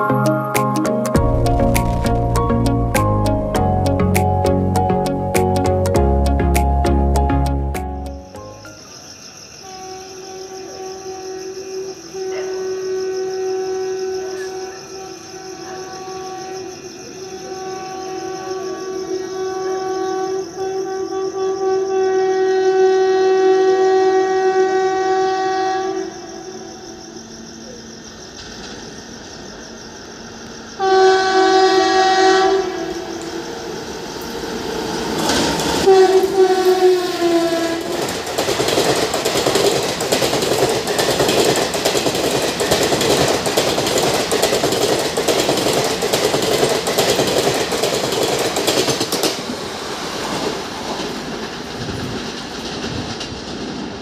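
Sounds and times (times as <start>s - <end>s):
locomotive horn blasts: 9.6s - 26.4s, 30.8s - 33.3s, 35.8s - 38.0s
train wheels clattering over rail joints: 37.8s - 49.6s, 50.2s - 54.0s.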